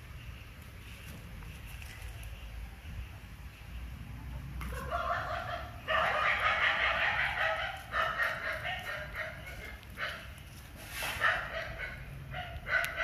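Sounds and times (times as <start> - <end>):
animal calling: 4.6 - 10.4.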